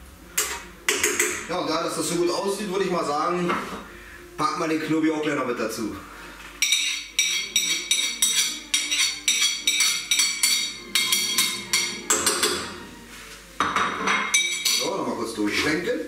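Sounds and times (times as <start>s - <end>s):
metal utensil clinking on plate: 6.6s - 12.7s, 13.9s - 15.0s.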